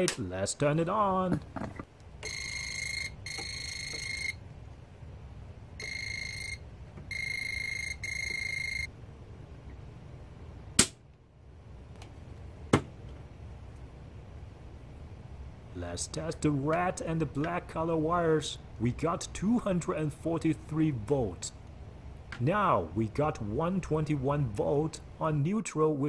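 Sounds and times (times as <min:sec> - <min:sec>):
voltage tester pen beeping: 0:02.2 - 0:04.4, 0:05.8 - 0:08.9.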